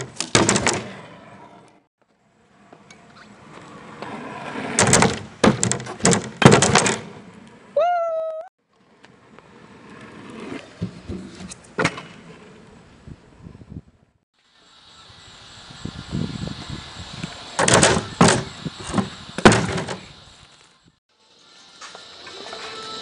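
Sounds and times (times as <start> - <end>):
scooter clattering on wooden ramp: 0.0 - 1.0, 4.8 - 7.2
scooter wheels rolling on asphalt: 0.0 - 7.8, 8.6 - 14.0, 15.9 - 21.0
scooter knocking wooden box: 4.8 - 7.1, 17.6 - 20.1.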